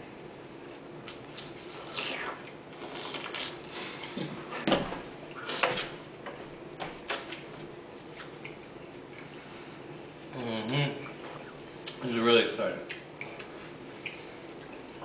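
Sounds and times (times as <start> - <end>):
wet slurping and chewing: 1.0 - 4.2.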